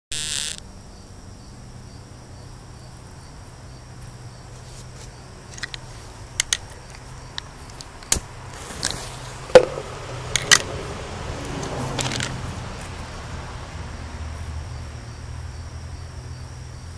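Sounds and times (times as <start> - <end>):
cricket-like insect trill: 0.1 - 9.1, 13.8 - 16.9
plastic container clicks and knocks: 9.5 - 10.7.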